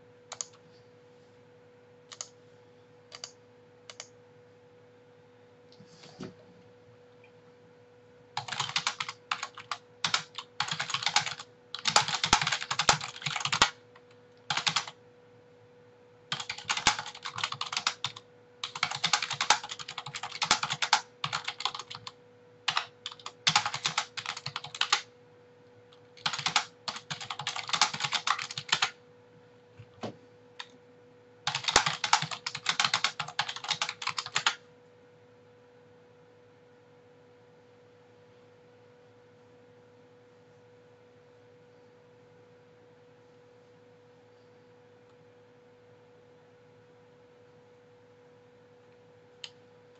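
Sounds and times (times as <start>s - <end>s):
steady electrical hum: 0.0s - 49.9s
typing on computer keyboard: 0.3s - 0.6s, 2.1s - 2.4s, 3.1s - 4.1s, 8.4s - 15.0s, 16.3s - 25.1s, 26.2s - 29.0s, 31.5s - 34.6s.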